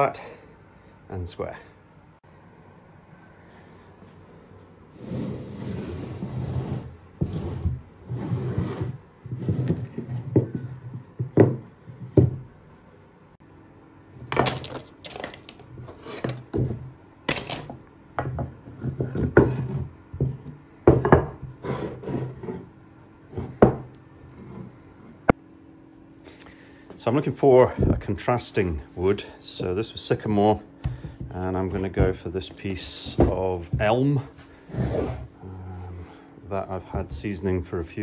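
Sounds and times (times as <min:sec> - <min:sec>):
wood scraping on workbench: 0:05.0 - 0:11.6, 0:14.4 - 0:17.7, 0:18.7 - 0:22.7, 0:34.6 - 0:35.4
wooden knocks: 0:10.2 - 0:12.4.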